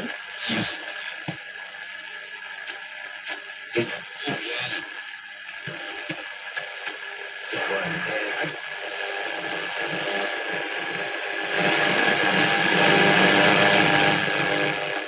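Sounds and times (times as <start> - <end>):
voice on shortwave radio: 0.0 - 1.3, 3.8 - 4.9, 7.5 - 8.6
radio static hiss: 0.0 - 15.0.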